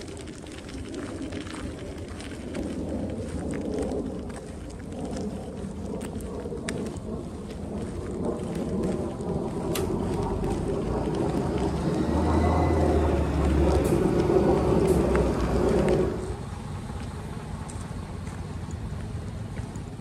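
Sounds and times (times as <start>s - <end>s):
bus driving past: 7.0s - 20.0s.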